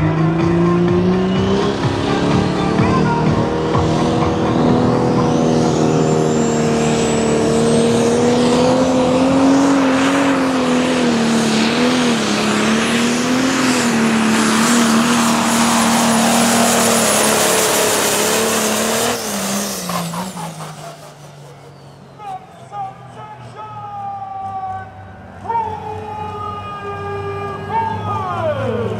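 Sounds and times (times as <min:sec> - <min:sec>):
diesel engine running flat out: 0:00.0 - 0:28.9
high turbo whistle: 0:01.0 - 0:23.1.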